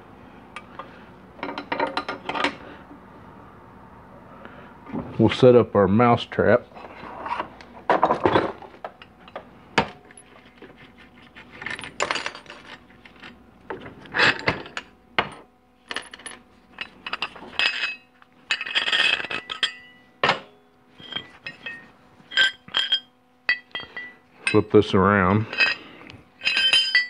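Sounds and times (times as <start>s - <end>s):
metal tools clinking on workbench: 11.6s - 13.4s, 14.0s - 20.4s, 21.0s - 24.7s, 25.4s - 27.0s.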